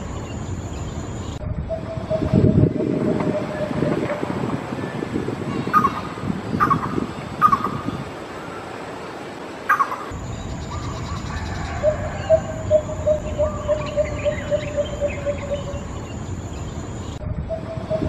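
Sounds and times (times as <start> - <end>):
faint insect chirring: 0.0 - 2.8, 9.7 - 17.2
bird calling hollow notes: 0.6 - 8.0, 9.7 - 16.0.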